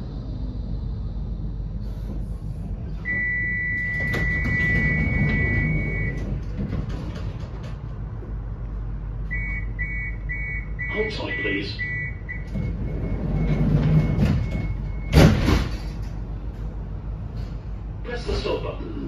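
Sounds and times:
tram hum: 0:00.0 - 0:19.0
rapid warning beeps: 0:03.1 - 0:06.2, 0:09.3 - 0:15.2.

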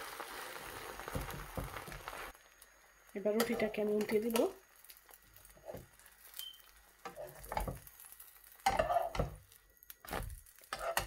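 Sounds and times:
egg sizzling in oil: 0:00.0 - 0:11.0
spatula scraping frying pan: 0:07.0 - 0:09.4, 0:10.2 - 0:11.0.

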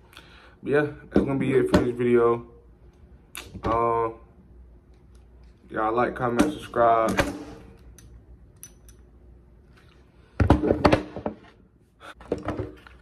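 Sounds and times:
knocks and thuds: 0:10.4 - 0:11.4.

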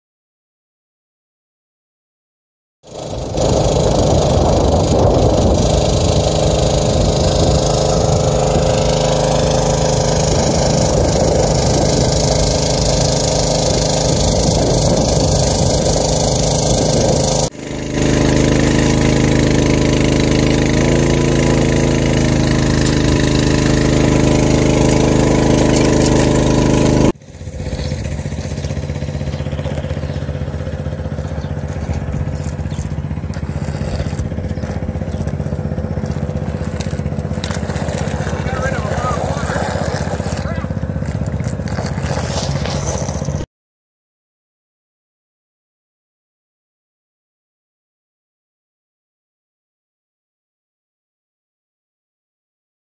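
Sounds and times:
water pump engine running: 0:02.8 - 0:43.5.

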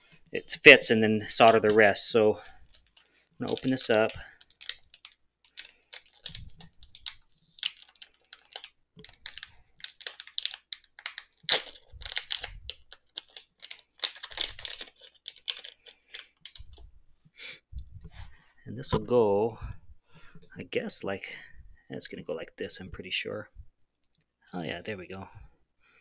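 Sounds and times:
plastic bag crinkling: 0:02.6 - 0:16.8.

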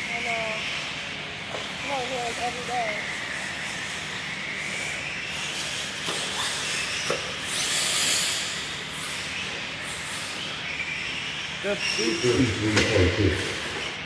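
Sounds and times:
toy car motor whine: 0:05.3 - 0:09.2.

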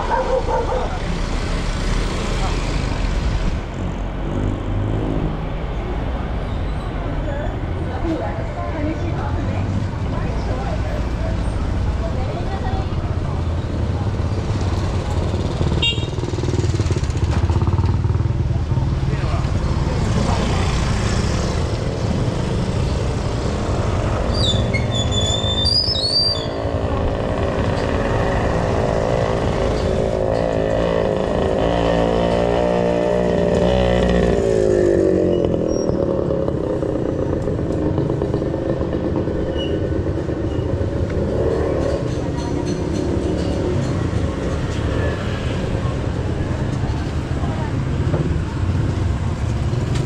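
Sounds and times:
motorcycle engines in traffic: 0:00.0 - 0:50.0
motorcycle passing close: 0:13.7 - 0:24.8, 0:26.4 - 0:50.0
short high squeaks: 0:24.3 - 0:26.6, 0:39.5 - 0:39.9.

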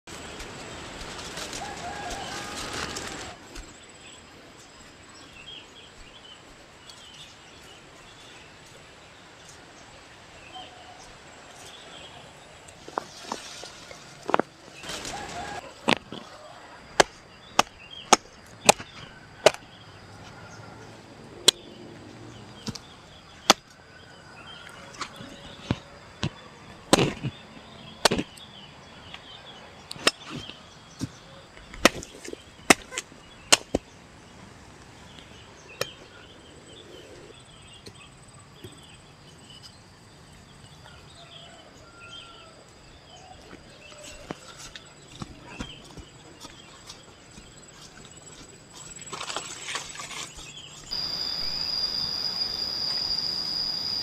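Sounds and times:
machete chopping: 0:17.0 - 0:19.6, 0:26.9 - 0:27.3, 0:28.0 - 0:28.4, 0:31.8 - 0:33.8.

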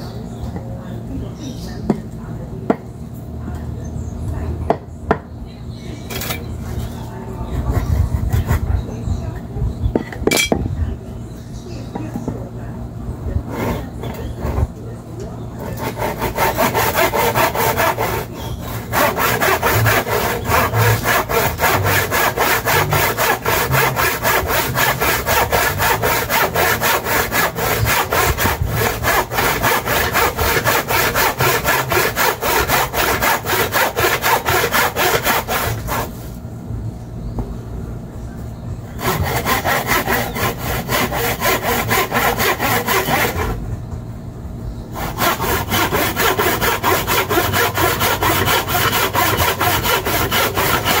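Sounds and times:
hand saw cutting wood: 0:13.5 - 0:14.7, 0:15.6 - 0:36.4, 0:39.0 - 0:43.6, 0:45.0 - 0:51.0.

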